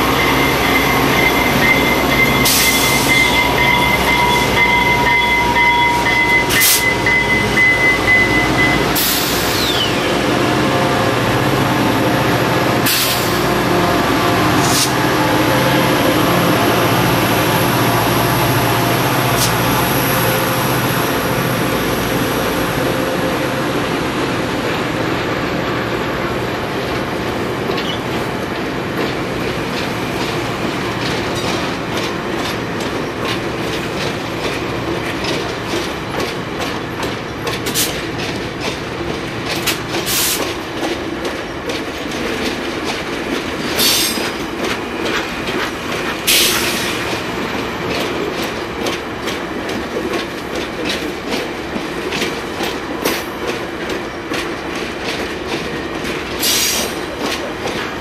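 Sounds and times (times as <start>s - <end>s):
train wheels clicking over rail joints: 24.5s - 58.0s.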